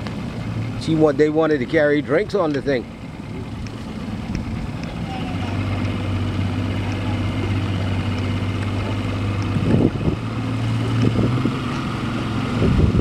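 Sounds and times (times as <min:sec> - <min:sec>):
outboard motor running: 0:00.0 - 0:13.0
wind on microphone: 0:09.5 - 0:13.0.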